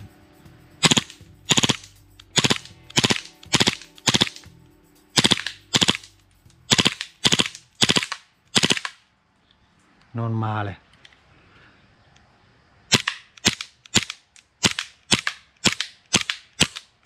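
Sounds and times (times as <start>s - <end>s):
airsoft pistol bursts: 0.8s - 4.5s, 5.2s - 6.1s, 6.7s - 9.0s.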